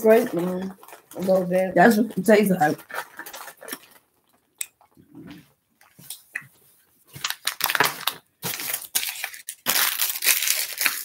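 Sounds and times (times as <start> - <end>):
plastic wrapper crinkling: 0.0 - 5.0, 7.1 - 11.0.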